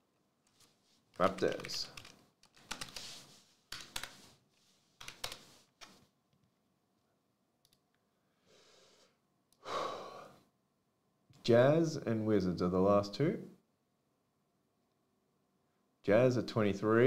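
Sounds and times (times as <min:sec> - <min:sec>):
keyboard typing: 0:00.4 - 0:04.2, 0:05.0 - 0:06.0
breathy exhale: 0:08.4 - 0:10.4.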